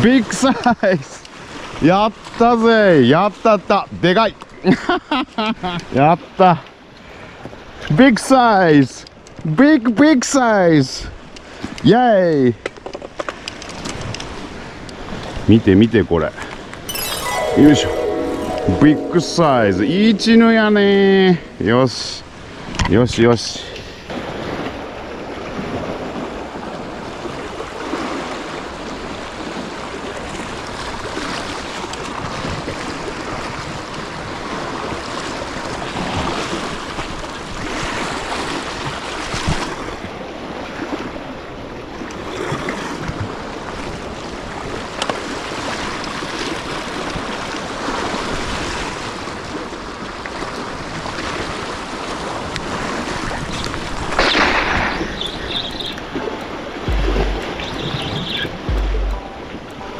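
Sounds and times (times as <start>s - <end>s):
waves on rocky shore: 24.0s - 56.8s.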